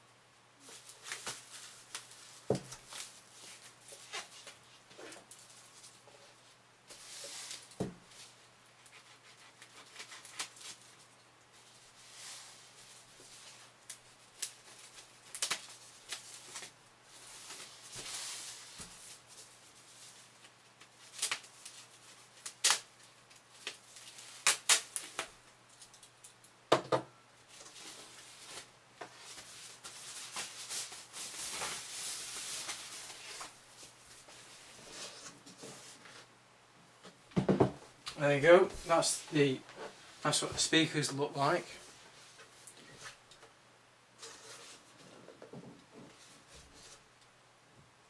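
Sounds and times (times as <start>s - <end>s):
packaging crinkling and rustling: 0.6s - 6.0s, 27.5s - 36.2s
tape peeling off: 13.8s - 16.7s, 20.4s - 26.1s.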